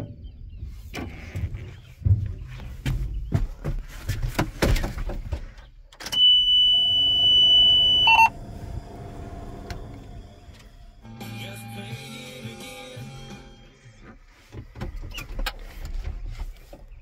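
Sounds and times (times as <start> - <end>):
knocks and clicks in tractor cab: 0.0 - 6.6, 14.4 - 17.0
high-pitched warning buzzer: 6.2 - 8.3.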